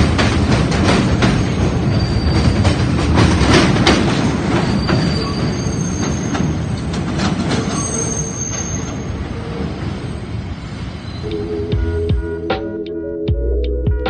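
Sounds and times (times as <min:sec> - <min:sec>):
subway train wheels clacking: 0:00.0 - 0:12.3
thin high wheel squeals: 0:01.8 - 0:02.7, 0:04.6 - 0:06.9, 0:07.5 - 0:10.2.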